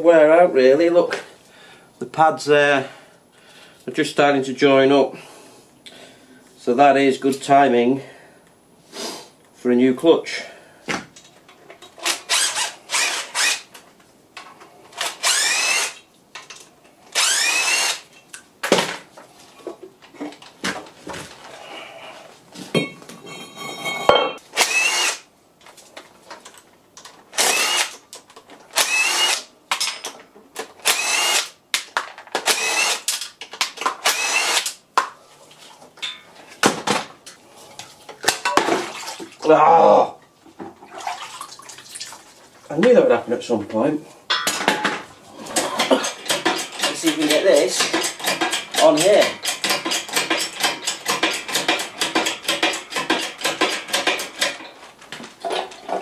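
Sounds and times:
power drill whining: 12.0s - 13.7s, 15.0s - 16.0s, 17.1s - 18.0s, 24.6s - 25.2s, 27.4s - 28.0s, 28.8s - 29.5s, 30.8s - 31.5s, 32.4s - 33.1s, 34.0s - 34.7s.

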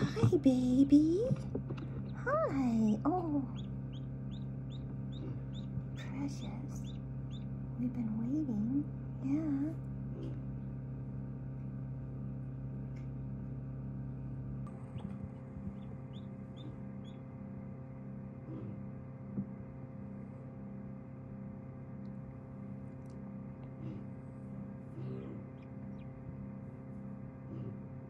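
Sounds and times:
egg incubator humming: 0.0s - 28.0s
ducklings peeping: 1.3s - 7.6s, 14.7s - 17.4s, 24.8s - 26.4s.

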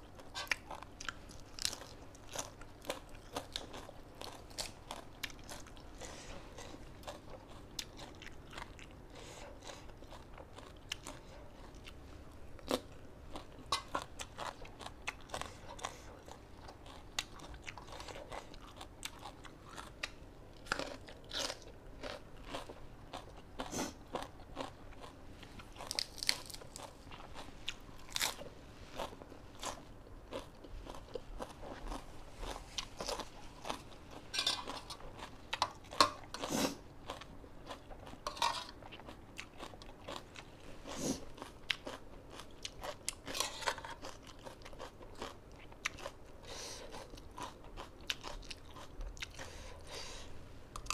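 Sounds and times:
person chewing crunchy food: 0.0s - 50.9s.

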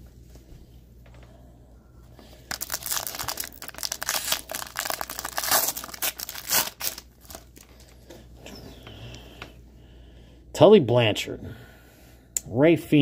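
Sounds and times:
foil pack tearing and crinkling: 2.5s - 7.9s.

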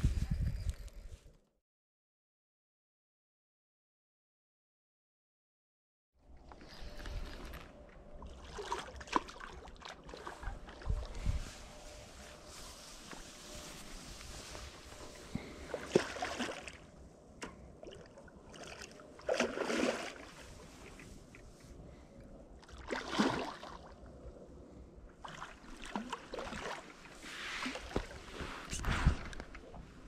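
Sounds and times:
water splashing at river's edge: 7.2s - 11.2s, 15.6s - 21.4s, 22.6s - 24.1s, 25.2s - 28.2s.

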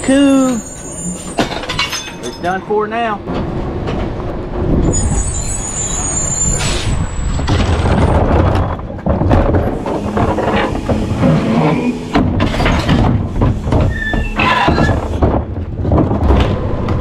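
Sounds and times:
brake squeal: 0.0s - 2.4s, 4.8s - 8.2s, 9.8s - 15.2s
trash cart clattering and knocking: 1.2s - 5.1s, 7.2s - 17.0s.

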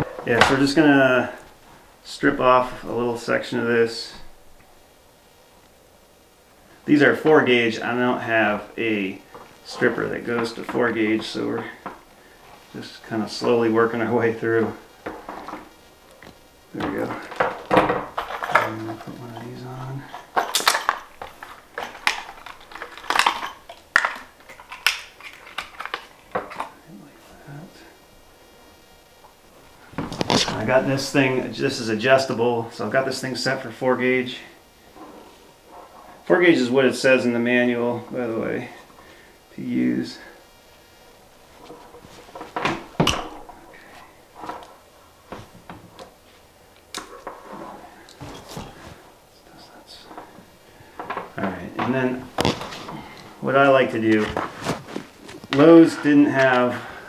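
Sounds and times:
crackles and clicks of cable parts: 14.6s - 27.8s, 29.1s - 31.4s, 41.5s - 57.0s
crimper metallic clicks and crunches: 16.2s - 26.6s.

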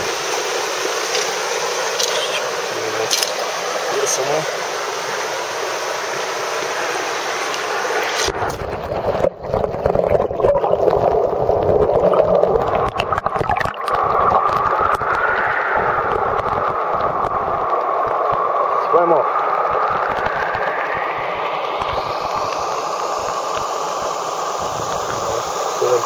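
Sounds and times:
stream water rushing and gurgling: 0.0s - 26.0s
underwater rumble of current: 7.9s - 26.0s
underwater knocks and pops: 8.3s - 15.3s.

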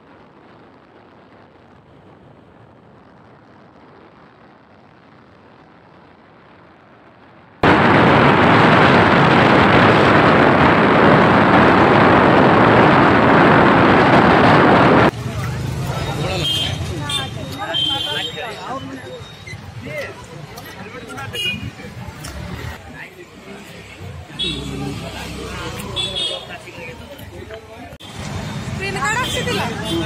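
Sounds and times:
wind rushing over microphone: 0.0s - 15.2s.

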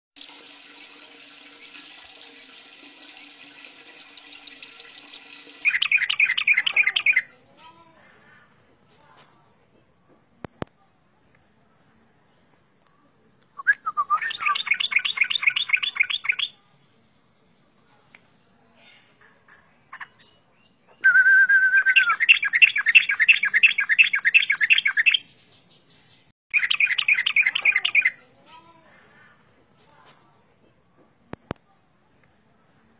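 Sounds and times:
bulbul singing: 0.2s - 7.5s, 13.6s - 17.0s, 19.9s - 28.2s
bird chattering song: 4.0s - 7.5s, 14.2s - 17.6s, 19.8s - 21.0s, 21.9s - 28.2s.

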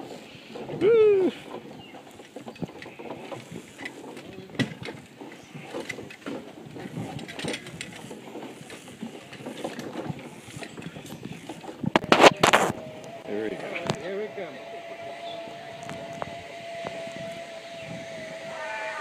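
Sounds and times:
footsteps on wooden bridge planks: 0.0s - 12.9s.

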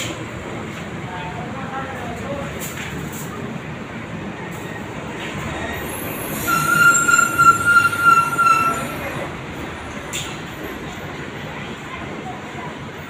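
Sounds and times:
high-pitched metallic squeal: 4.4s - 9.3s.

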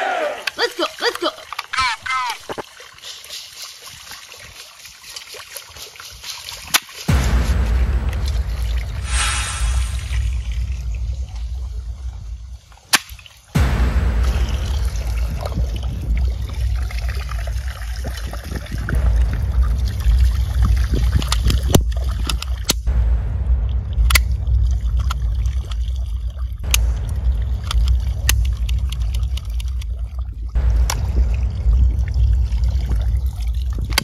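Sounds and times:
muddy water sloshing: 0.4s - 9.2s, 9.8s - 22.9s, 23.6s - 34.0s
steady low rumble: 7.1s - 34.0s.

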